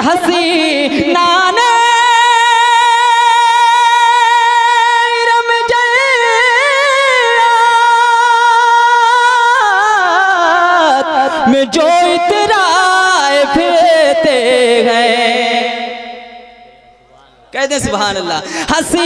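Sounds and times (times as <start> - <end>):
boy singing through microphone: 0.0 - 16.8, 18.0 - 19.0.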